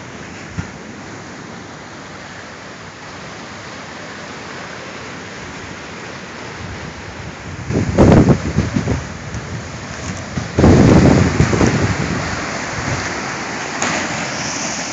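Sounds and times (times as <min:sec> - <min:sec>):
river rushing over rapids: 0:00.0 - 0:14.9
wind buffeting microphone: 0:06.5 - 0:13.6.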